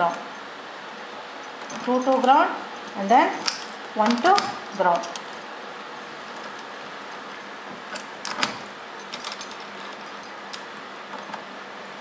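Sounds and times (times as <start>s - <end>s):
patch cords clicking into sockets: 3.3s - 5.4s, 7.7s - 11.5s.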